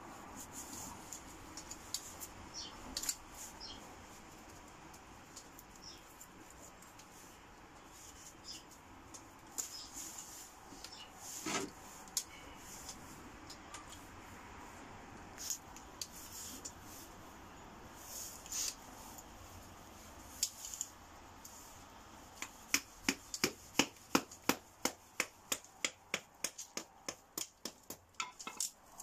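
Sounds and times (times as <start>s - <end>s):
knife chopping kindling: 22.4s - 28.6s.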